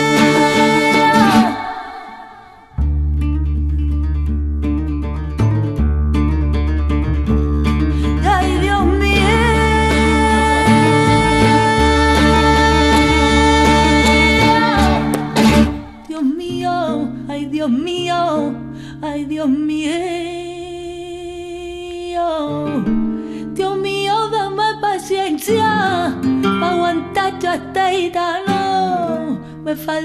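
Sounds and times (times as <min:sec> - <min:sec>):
person singing: 0:00.0 - 0:02.8, 0:08.0 - 0:22.9, 0:23.6 - 0:30.0
flamenco guitar: 0:00.0 - 0:30.0.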